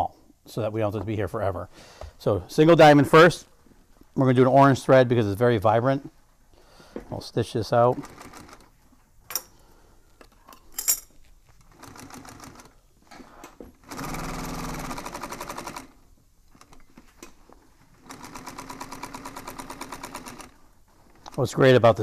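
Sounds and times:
sewing machine stitching: 0:08.0 - 0:08.7, 0:11.7 - 0:12.8, 0:13.8 - 0:16.0, 0:18.0 - 0:20.6.

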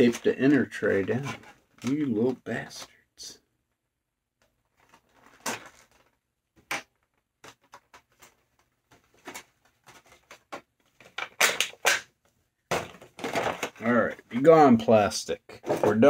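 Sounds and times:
plastic tray crinkling and snapping: 0:04.4 - 0:12.1.

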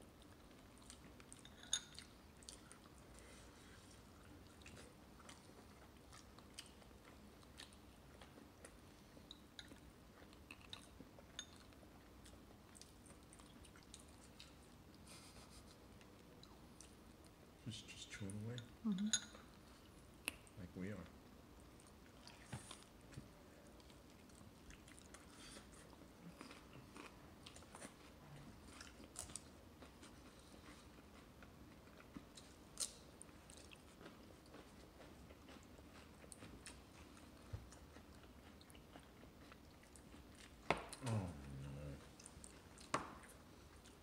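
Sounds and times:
baby chewing on bone: 0:23.8 - 0:44.0.

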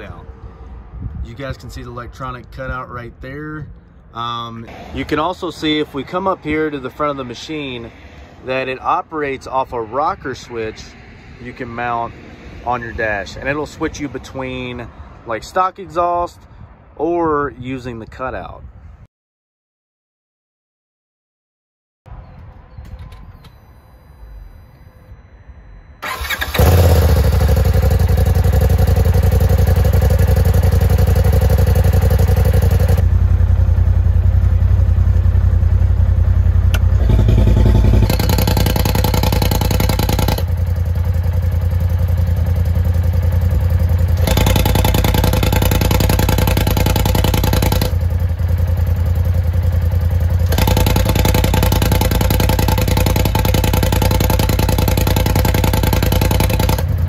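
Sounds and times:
engine idling: 0:26.0 - 0:57.0.

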